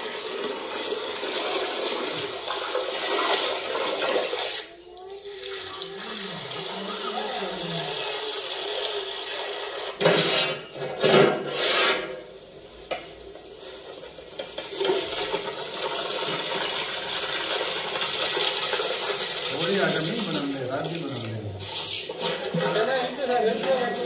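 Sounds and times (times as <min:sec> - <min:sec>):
water pouring off rice: 0:00.0 - 0:10.2, 0:12.2 - 0:24.0
wet rice scraping metal pot: 0:05.4 - 0:24.0.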